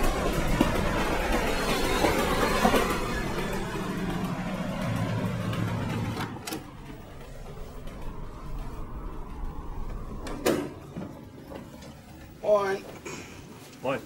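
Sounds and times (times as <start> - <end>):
diesel locomotive passing on bridge: 0.0 - 10.3.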